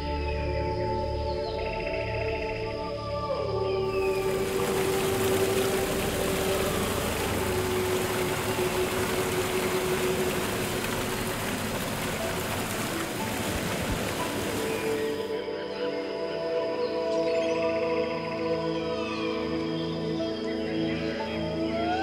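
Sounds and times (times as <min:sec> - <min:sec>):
steady rushing hiss: 0:04.0 - 0:15.3.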